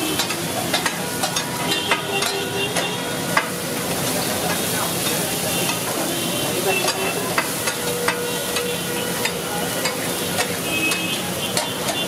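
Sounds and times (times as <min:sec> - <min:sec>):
food sizzling in a hot pan: 0:00.0 - 0:12.0.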